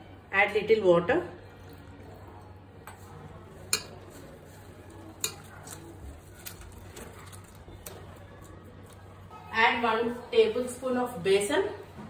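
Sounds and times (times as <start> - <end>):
spoon stirring paste in bowl: 1.5 - 9.0.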